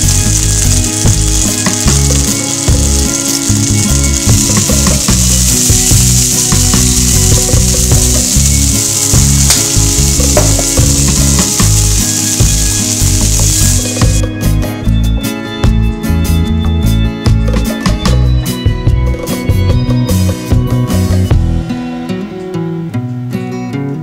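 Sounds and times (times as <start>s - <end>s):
scallops sizzling in frying pan: 0.0s - 14.2s.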